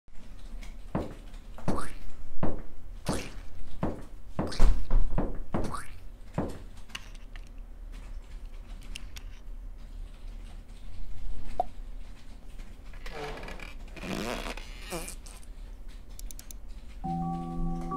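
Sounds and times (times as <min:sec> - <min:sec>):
footsteps on wooden floor: 0:00.9 - 0:02.7, 0:03.6 - 0:06.7.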